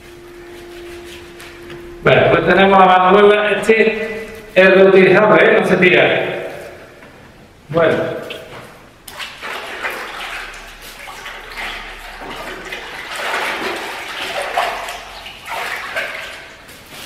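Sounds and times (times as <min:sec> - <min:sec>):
water running and splashing: 0:09.0 - 0:17.0.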